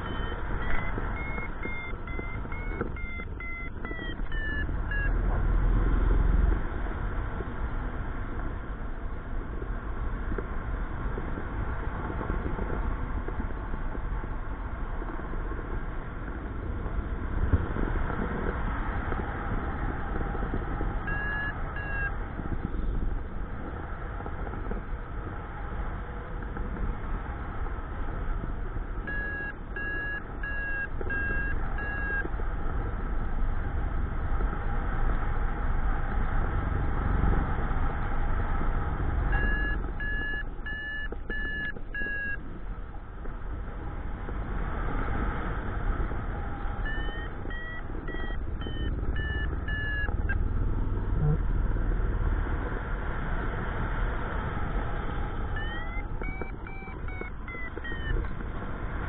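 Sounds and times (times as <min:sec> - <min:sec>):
variometer beeping: 0:00.0 - 0:05.6, 0:19.1 - 0:23.6, 0:28.8 - 0:32.4, 0:39.1 - 0:43.8, 0:46.3 - 0:51.4, 0:55.0 - 0:58.6.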